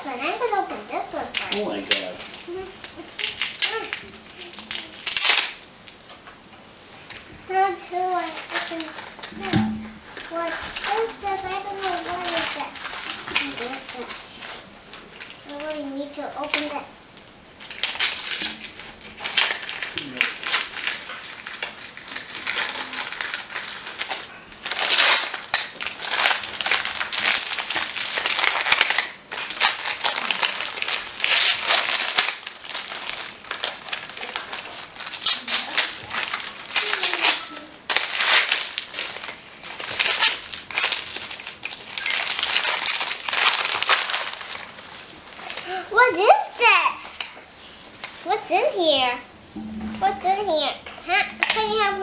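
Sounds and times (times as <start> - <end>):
wrapping paper tearing and rustling: 0.0 - 6.1, 7.0 - 52.0.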